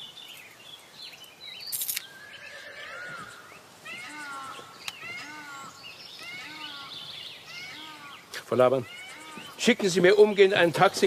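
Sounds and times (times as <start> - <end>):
outdoor ambience: 0.0 - 11.0
short wavering animal calls: 2.3 - 9.6.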